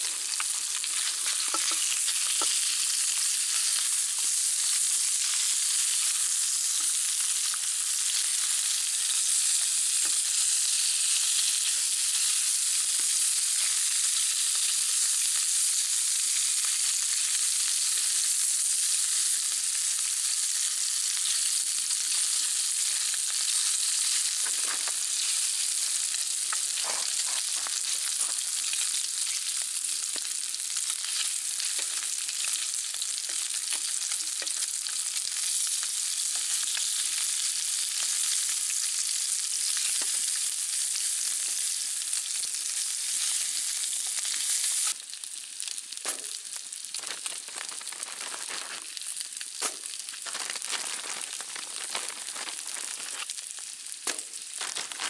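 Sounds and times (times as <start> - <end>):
meat sizzling in a frying pan: 0.0 - 55.0
tongs clicking and scraping: 0.3 - 2.8, 26.5 - 30.3, 49.6 - 53.4.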